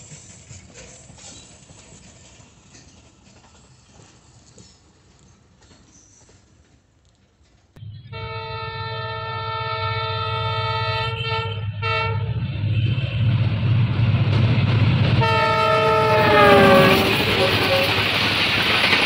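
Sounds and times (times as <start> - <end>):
locomotive engine rumble: 0.0 - 6.2, 6.9 - 19.0
locomotive horn chord: 7.9 - 13.3, 15.2 - 18.0.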